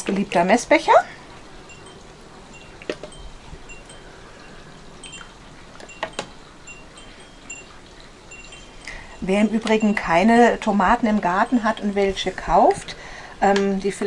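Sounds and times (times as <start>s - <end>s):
glass clinking: 1.6s - 10.7s.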